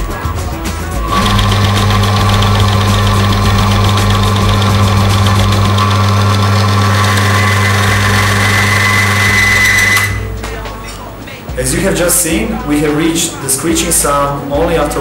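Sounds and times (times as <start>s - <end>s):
electric motor humming: 0.8s - 10.3s
high-pitched screech: 0.9s - 10.2s.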